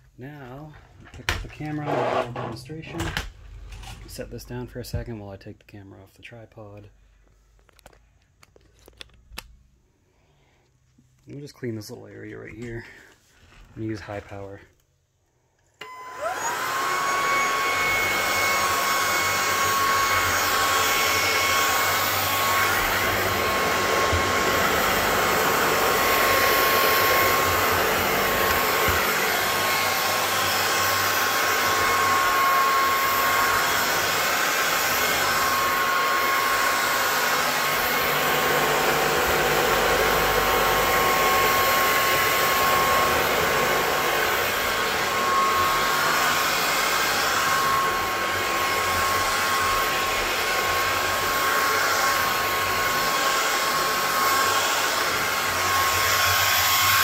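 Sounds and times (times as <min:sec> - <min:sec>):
vacuum motor whine: 0:15.8 - 0:57.0.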